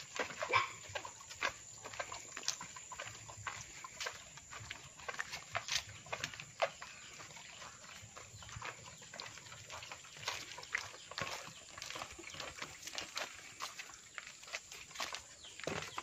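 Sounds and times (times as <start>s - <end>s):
buckets knocking and sloshing: 0.0s - 16.0s
footsteps on dirt path: 0.0s - 16.0s
animal calls: 0.2s - 1.4s.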